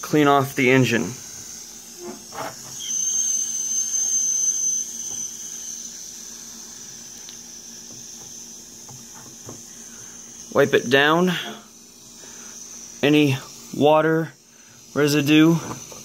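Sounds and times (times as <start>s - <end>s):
high-pitched steam whistle: 1.0s - 7.2s.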